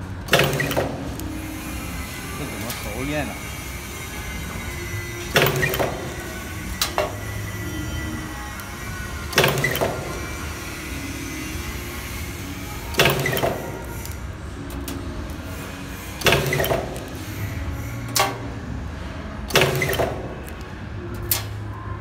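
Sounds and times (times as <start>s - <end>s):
low machine hum: 0.0s - 22.0s
machine clack with hiss: 12.9s - 14.0s, 15.5s - 17.4s, 19.5s - 20.2s.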